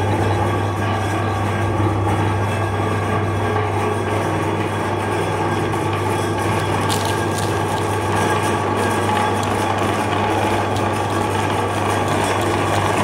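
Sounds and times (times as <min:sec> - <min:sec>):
meat grinder motor humming: 0:04.8 - 0:13.0.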